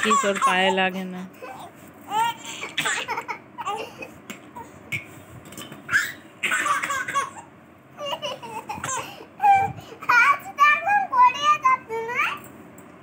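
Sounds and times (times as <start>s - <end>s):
baby laughing: 0.0s - 0.7s, 1.4s - 4.7s, 5.9s - 10.2s
child laughing: 1.4s - 4.2s, 5.9s - 10.4s.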